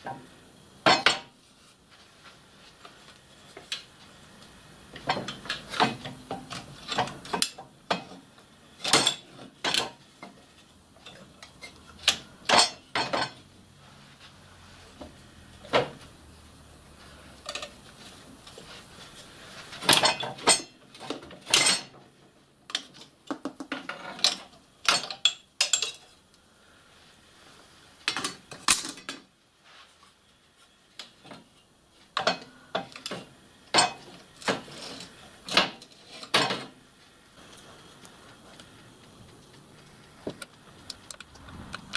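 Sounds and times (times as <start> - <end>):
metal parts clinking and clanking: 5.0 - 8.1, 8.8 - 10.4, 11.0 - 13.4, 17.4 - 17.8, 19.8 - 22.0, 23.8 - 26.1, 28.1 - 29.3.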